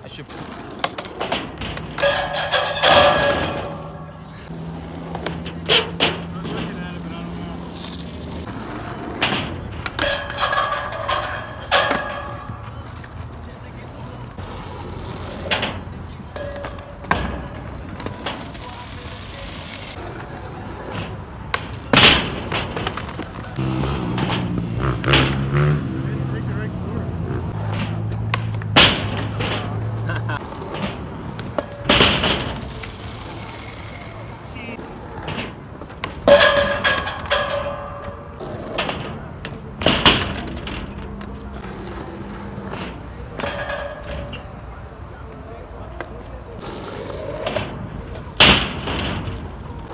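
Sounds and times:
skateboard wheels rolling: 0.0 - 49.9
skateboard clattering: 0.2 - 25.7, 27.4 - 49.9
skateboard deck clacking on ramp: 15.2 - 25.6.

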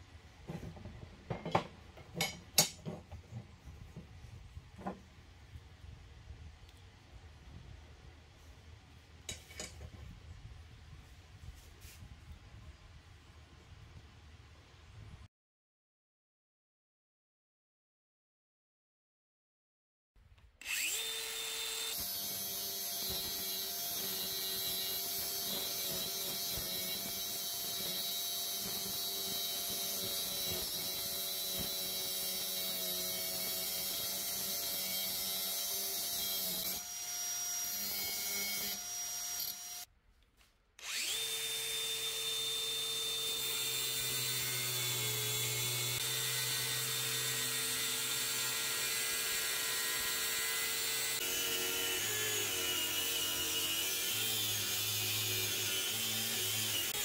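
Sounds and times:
angle grinder cutting steel: 20.6 - 39.9, 40.8 - 57.0.

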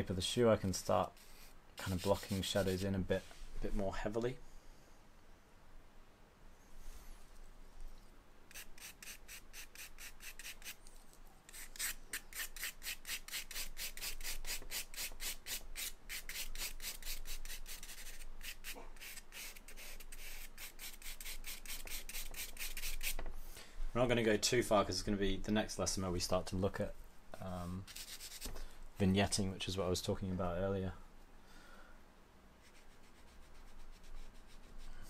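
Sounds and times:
charcoal scratching on paper: 1.1 - 3.3, 8.5 - 23.2, 27.8 - 28.5, 32.6 - 35.0.

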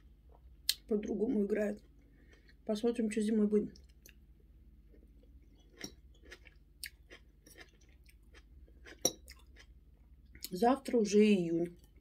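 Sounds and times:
person chewing food: 1.8 - 2.6, 4.8 - 10.5.

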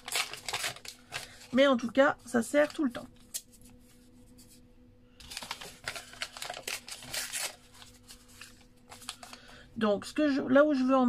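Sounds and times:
paper ripping and rustling: 0.0 - 1.6, 5.2 - 9.6.

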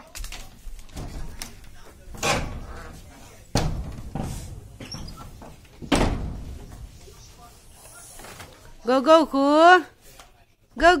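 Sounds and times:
dull thumps and knocks: 3.5 - 6.8.

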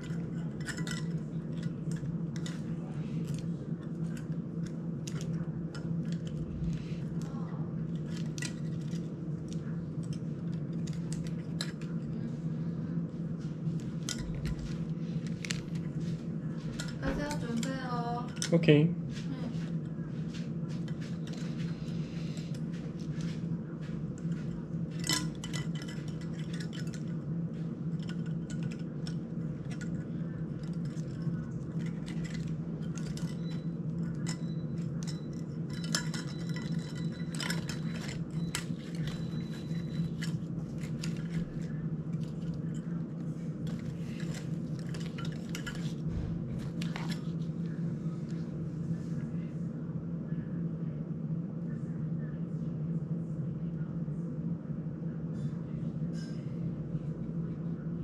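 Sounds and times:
small parts tapping: 0.0 - 12.3, 13.7 - 18.7, 24.2 - 47.4
steady low hum: 0.0 - 58.0.

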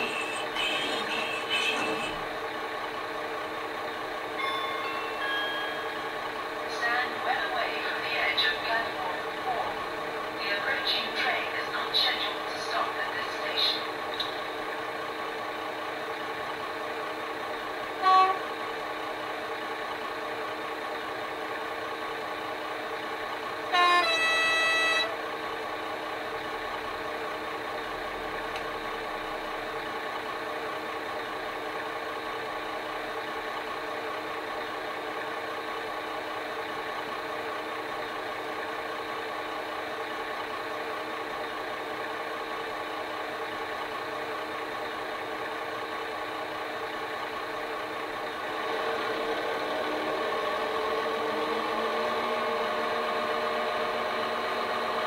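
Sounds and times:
locomotive horn: 0.0 - 2.3, 17.9 - 18.6, 23.6 - 25.2
diesel locomotive engine idling: 0.0 - 55.0.

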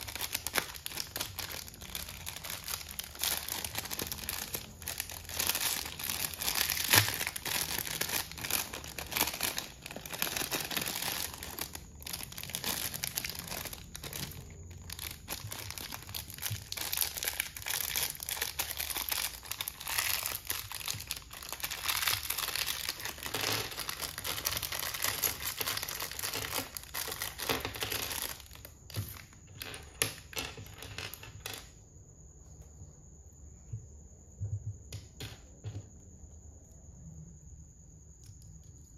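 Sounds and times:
foil wrapper crinkling and tearing: 0.0 - 29.6
plastic bag crinkling: 0.0 - 31.6.

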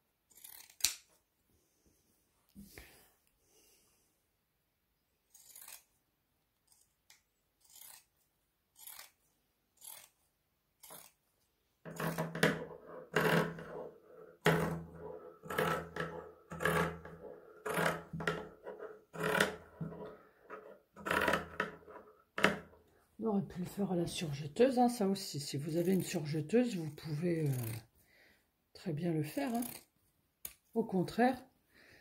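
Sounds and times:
fabric scissors snipping: 0.3 - 1.2, 5.3 - 6.0, 6.6 - 9.2, 9.8 - 10.2, 10.8 - 11.2.

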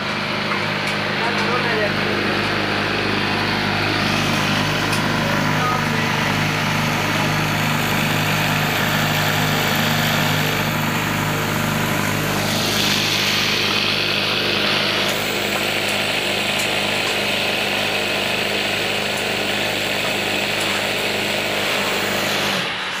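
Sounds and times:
motor hum: 0.0 - 23.0
sewing machine stitching: 12.0 - 23.0.

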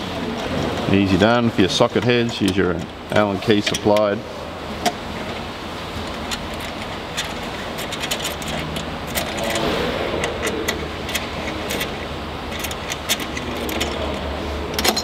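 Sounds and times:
allen key clicking in bolts: 6.1 - 15.0.

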